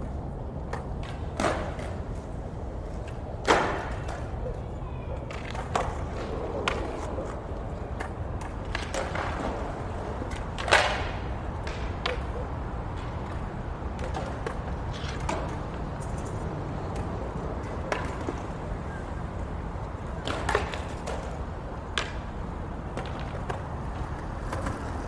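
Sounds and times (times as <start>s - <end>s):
city hum: 0.0s - 25.0s
skateboard wheels rolling on stone: 0.0s - 25.0s
skateboards clacking on ground: 0.0s - 25.0s
loud skateboard impact: 1.0s - 2.1s, 3.4s - 4.3s, 8.6s - 12.4s.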